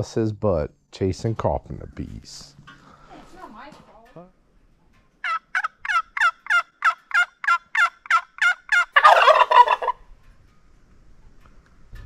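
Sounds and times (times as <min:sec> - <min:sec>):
turkey yelps: 0:05.2 - 0:10.0
turkey gobble: 0:05.2 - 0:10.1.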